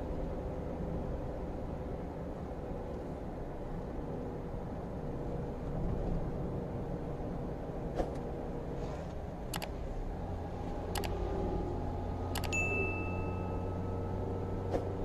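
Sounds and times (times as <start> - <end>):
car road noise and engine hum: 0.0 - 15.0
truck low drone: 0.0 - 15.0
mouse clicks: 9.5 - 9.7, 11.0 - 11.2, 12.4 - 12.6.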